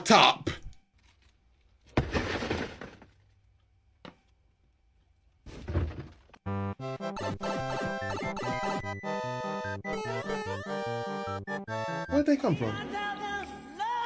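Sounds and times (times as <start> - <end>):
bouncy comic music: 6.5 - 13.9.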